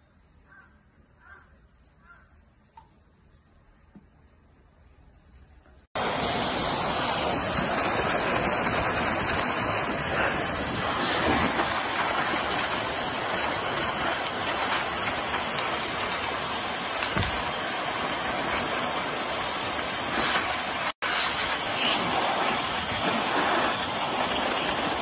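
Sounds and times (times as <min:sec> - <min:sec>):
hair dryer running: 0:06.0 - 0:25.0.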